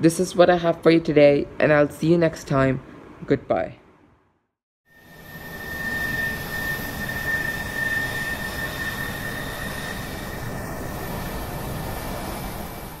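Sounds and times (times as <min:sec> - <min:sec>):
jet engine whine and roar: 0:04.9 - 0:13.0.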